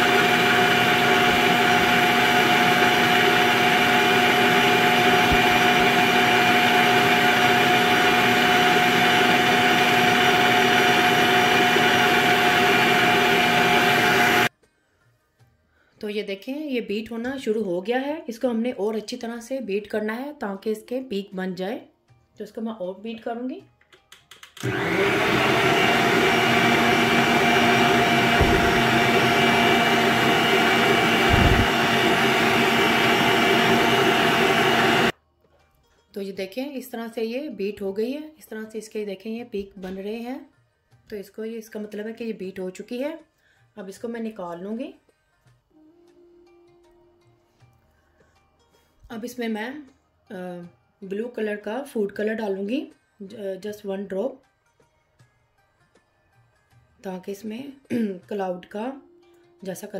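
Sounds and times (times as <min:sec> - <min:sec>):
stand mixer motor whine: 0:00.0 - 0:14.5, 0:24.6 - 0:35.2
low thuds: 0:28.3 - 0:29.1, 0:31.2 - 0:31.8.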